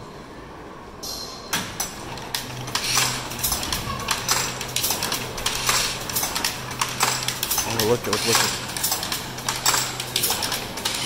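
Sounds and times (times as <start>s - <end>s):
loom clattering and knocking: 1.7s - 11.0s.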